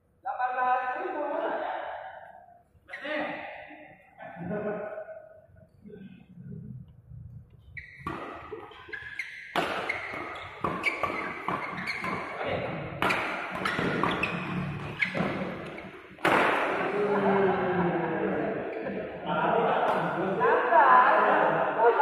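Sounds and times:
shoes squeaking on court: 7.6 - 16.4
rackets hitting shuttlecock: 7.9 - 12.4, 13.0 - 17.0.

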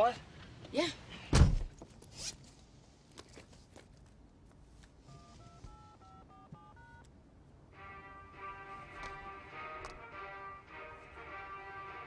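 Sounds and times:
phone keypad beeps: 5.1 - 7.1
ringtone melody: 5.2 - 7.0, 7.8 - 12.0.

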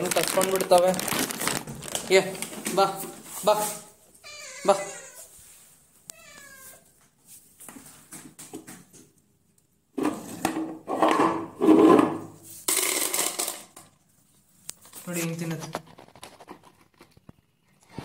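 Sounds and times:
cats meowing: 4.2 - 5.4, 6.0 - 7.0.

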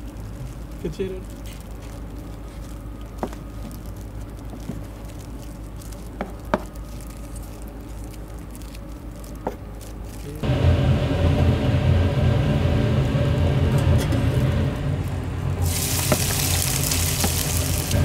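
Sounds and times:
low hum: 10.1 - 18.0
loud low rumble: 10.4 - 18.0.

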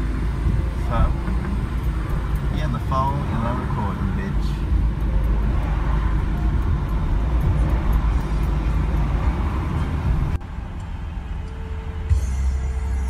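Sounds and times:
car road noise rumble: 0.0 - 13.0
music: 6.6 - 13.0.

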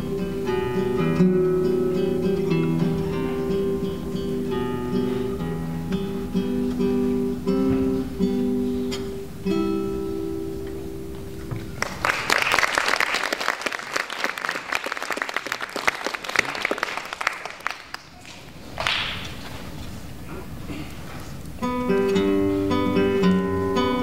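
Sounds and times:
classical guitar playing: 0.0 - 11.8, 21.5 - 24.0
audience applause: 11.8 - 19.3.

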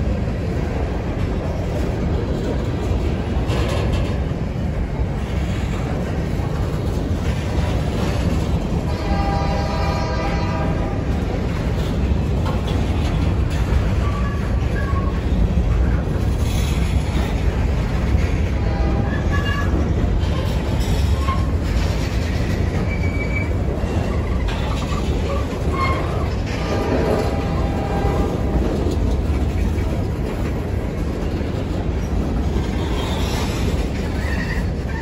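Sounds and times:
steel wheels rumbling on rail: 0.0 - 35.0
wheel squeals: 20.8 - 26.4, 32.6 - 35.0.

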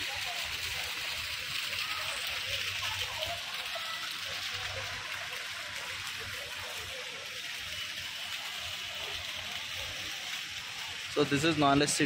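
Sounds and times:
fountain water splashing: 0.0 - 12.0.

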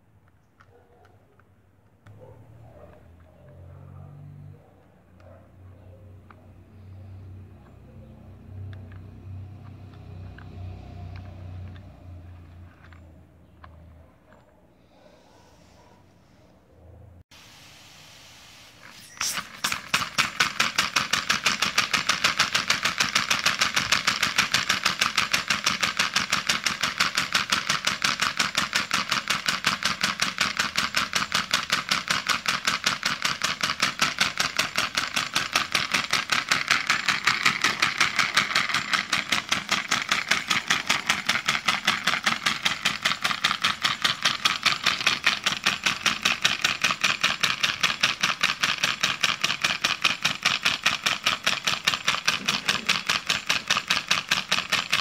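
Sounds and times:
compressed-air engine puffing: 6.3 - 13.1, 17.3 - 49.1.

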